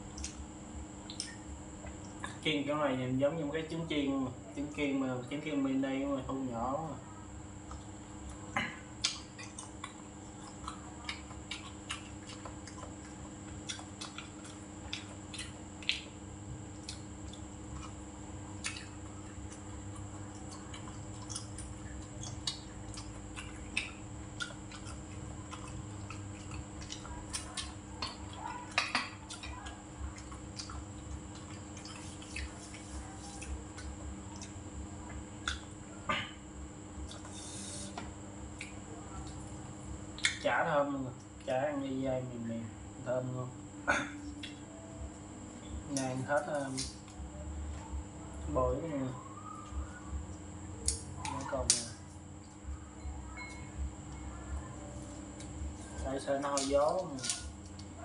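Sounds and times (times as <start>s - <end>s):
chewing: 7.6s - 36.4s, 37.0s - 37.9s, 38.5s - 40.4s.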